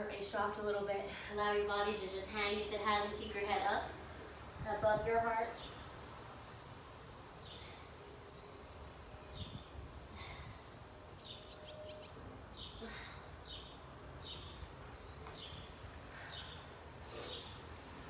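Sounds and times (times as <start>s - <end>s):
low background hum: 0.0s - 18.0s
songbird chirping: 11.2s - 12.8s, 13.4s - 17.6s.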